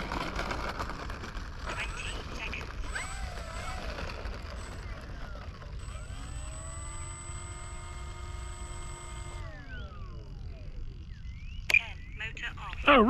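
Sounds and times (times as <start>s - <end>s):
electric motor and propeller whine: 0.0s - 13.0s.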